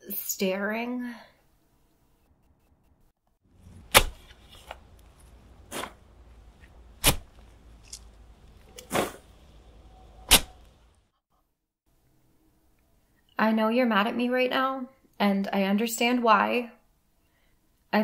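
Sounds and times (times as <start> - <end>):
shovel digging into earth: 5.6 - 6.1, 7.0 - 8.1, 8.7 - 9.3.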